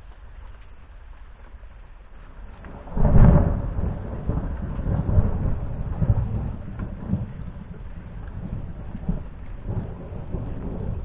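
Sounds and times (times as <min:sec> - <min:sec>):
thunder clap and rumbles: 0:01.5 - 0:11.0.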